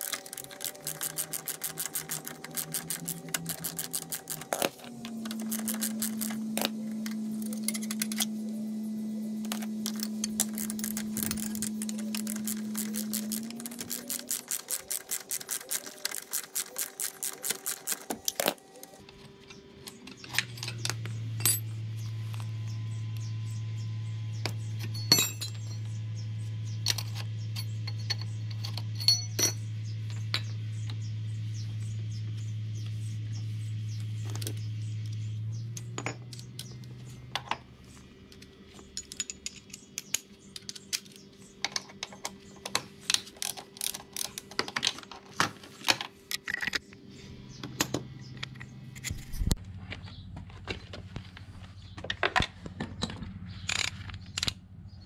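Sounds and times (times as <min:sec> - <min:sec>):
metal tools clinking: 0:00.0 - 0:08.5, 0:09.4 - 0:18.6, 0:20.0 - 0:21.7, 0:24.8 - 0:25.9, 0:26.8 - 0:30.6, 0:35.8 - 0:37.6, 0:38.7 - 0:45.2
low hum: 0:00.0 - 0:44.7.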